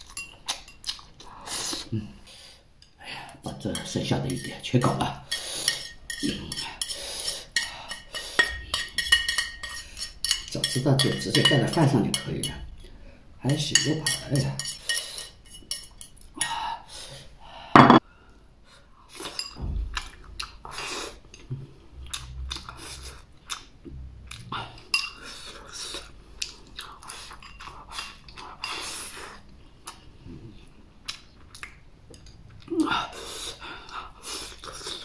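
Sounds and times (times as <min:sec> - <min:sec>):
person chewing: 0:00.0 - 0:02.0, 0:20.0 - 0:35.0
chopsticks clinking on bowl: 0:07.6 - 0:12.6.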